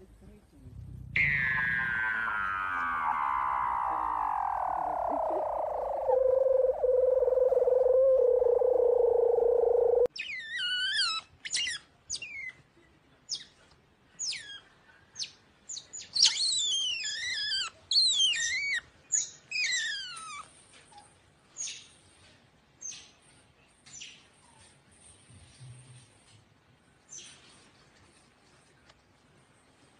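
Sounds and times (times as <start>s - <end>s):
otter squeaking chirps: 1.1s - 12.5s.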